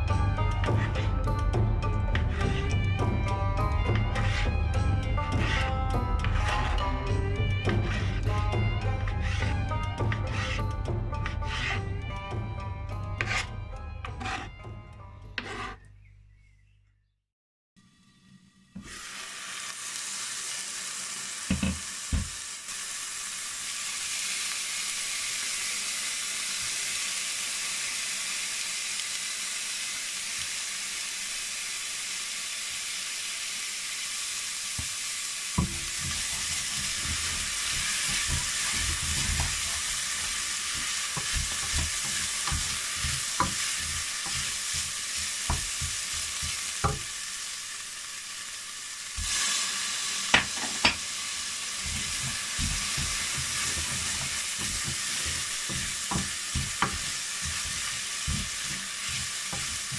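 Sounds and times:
onion sizzling in a pot: 0.0s - 14.7s, 17.8s - 59.9s
wooden spoon scraping a pot: 0.4s - 1.2s, 2.1s - 2.8s, 3.8s - 12.0s, 13.1s - 14.6s, 15.2s - 15.9s, 35.6s - 47.0s, 51.8s - 59.9s.

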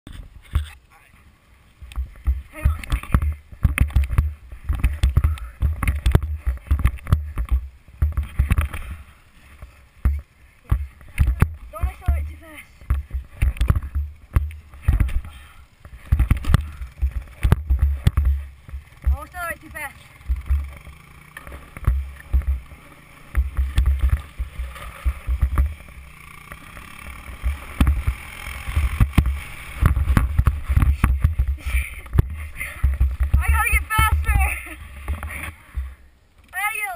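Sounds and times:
sharp knocks and clicks: 1.8s - 8.8s, 10.0s - 19.2s, 20.2s - 22.7s, 23.3s - 25.9s, 27.4s - 34.4s
sliding over snow: 8.2s - 36.0s
low thumps: 10.0s - 20.8s, 21.5s - 26.1s, 27.3s - 36.0s.

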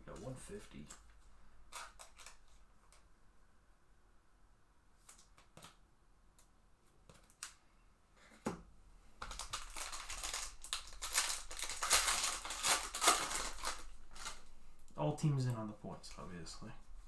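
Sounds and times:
foil pack tearing open: 9.3s - 14.4s.

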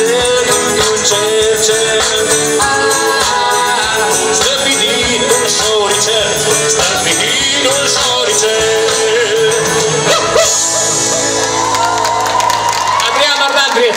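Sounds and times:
person singing: 0.0s - 10.8s
live rock band playing: 0.0s - 13.0s.

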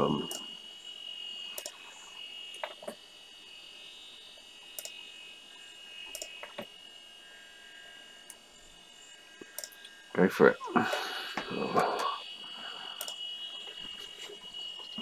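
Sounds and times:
computer humming and whining: 0.0s - 15.0s
faint clicks: 1.5s - 1.8s, 4.8s - 5.0s, 6.1s - 6.7s, 9.4s - 10.0s, 13.0s - 13.2s.

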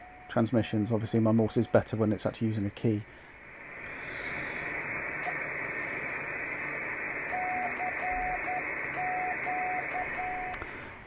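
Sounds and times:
receiver hiss: 0.0s - 11.0s
morse code tone: 7.3s - 10.6s.

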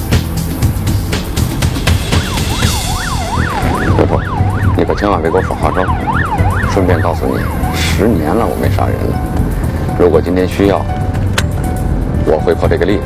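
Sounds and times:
lower warbling siren: 1.7s - 9.4s
electronic siren wailing: 1.8s - 8.0s.

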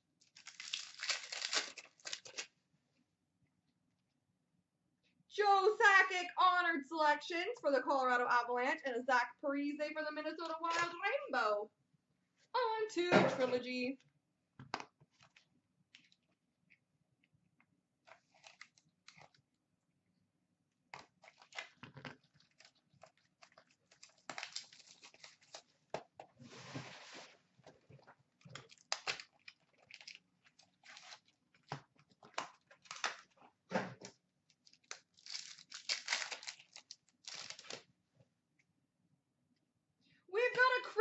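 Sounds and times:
wrapper crinkling and tearing: 0.2s - 2.6s, 18.1s - 19.4s, 21.0s - 25.7s, 28.4s - 33.4s, 34.5s - 37.8s.

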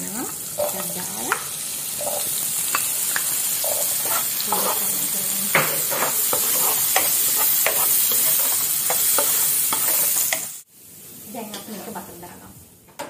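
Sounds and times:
peas sizzling in a pan: 0.0s - 12.4s
wooden spoon scraping a pan: 0.4s - 10.6s.

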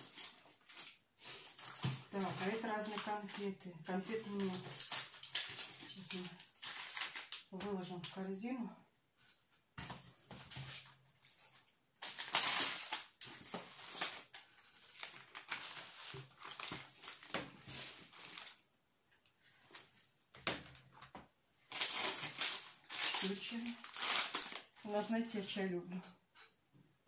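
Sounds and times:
food packets crinkling: 0.0s - 8.2s, 10.6s - 18.7s, 20.8s - 25.1s.

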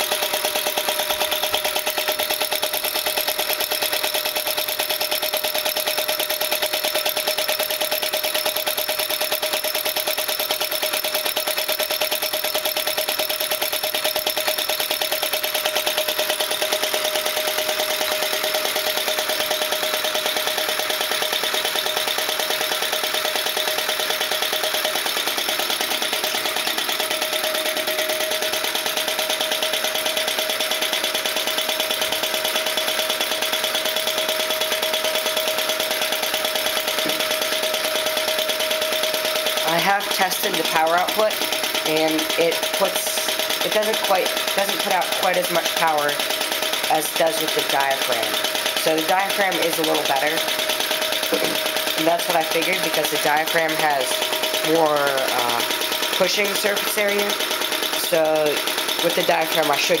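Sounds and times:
stirling engine clattering: 36.0s - 60.0s.

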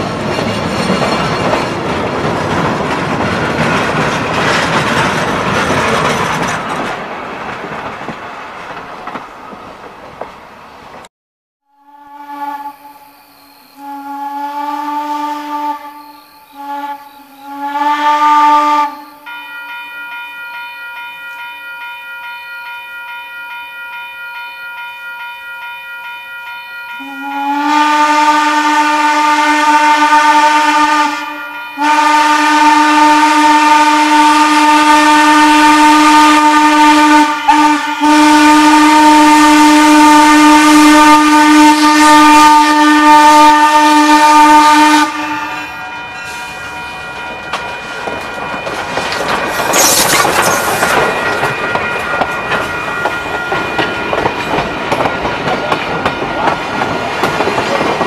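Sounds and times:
train rolling: 0.0s - 11.1s, 26.9s - 58.0s
steam whistle blasts: 11.7s - 19.4s, 27.0s - 47.5s
steam hissing: 49.4s - 51.4s.

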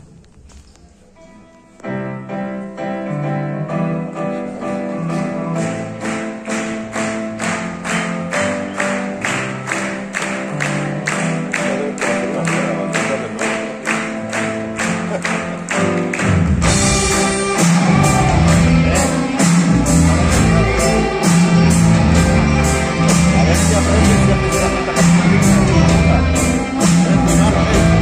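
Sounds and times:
keyboard chords: 1.4s - 28.0s
drums playing a steady beat: 15.4s - 28.0s.

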